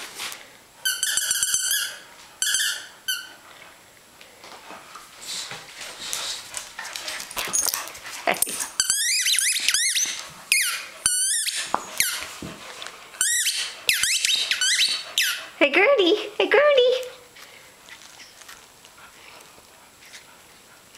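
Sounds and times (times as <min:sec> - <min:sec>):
squeaky dog toy squeaking: 0:00.8 - 0:03.4, 0:08.8 - 0:12.2, 0:13.2 - 0:15.4
puppy chewing and rustling: 0:03.5 - 0:15.2, 0:17.3 - 0:20.9.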